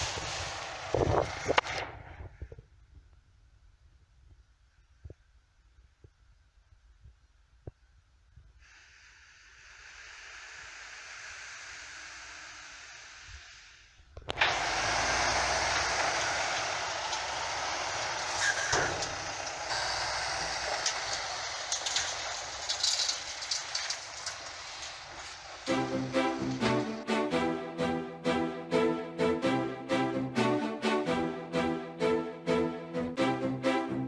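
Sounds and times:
truck tipping sand: 0:00.0 - 0:02.1, 0:14.2 - 0:27.0
rattles: 0:00.0 - 0:03.1, 0:14.0 - 0:27.0.

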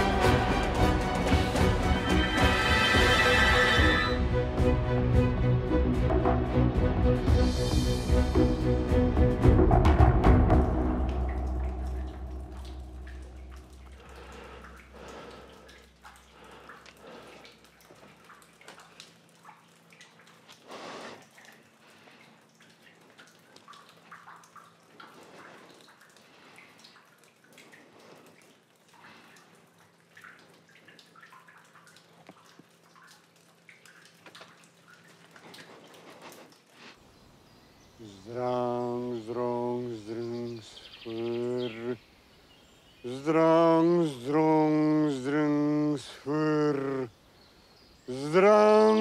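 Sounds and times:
music with timpani: 0:00.0 - 0:12.5
water drips: 0:07.3 - 0:49.0
low steady hum: 0:10.6 - 0:20.6.

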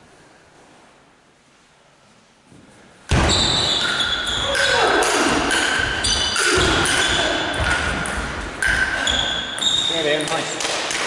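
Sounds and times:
table tennis ball pinging: 0:03.7 - 0:11.0.

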